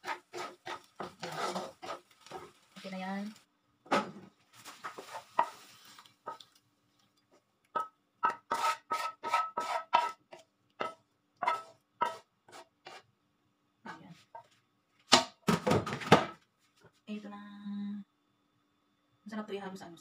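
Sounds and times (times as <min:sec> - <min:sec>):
wooden spatula scraping a wok: 0:00.0 - 0:03.3, 0:04.6 - 0:06.5, 0:08.2 - 0:13.1.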